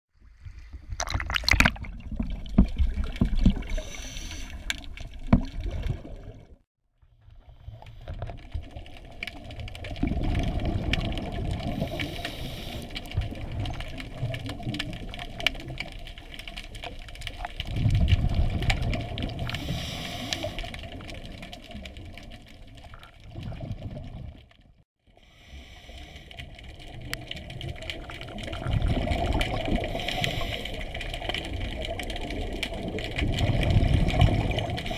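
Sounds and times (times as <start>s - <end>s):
water sloshing and splashing: 0.1s - 24.8s, 26.2s - 34.9s
regulator bubbles rushing: 0.7s - 6.6s, 8.8s - 12.0s, 26.6s - 30.1s, 31.1s - 34.9s.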